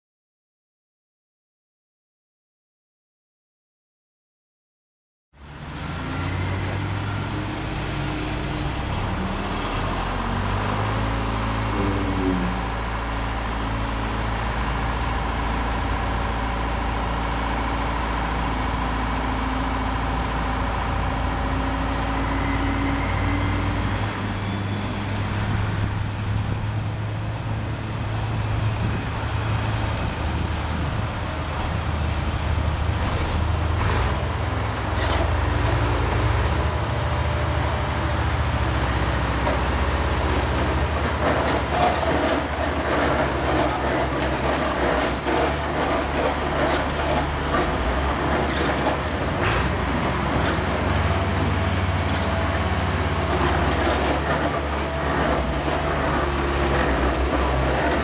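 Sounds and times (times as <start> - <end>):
engine drone: 5.4 - 58.0
hydraulic whine: 11.4 - 13.6.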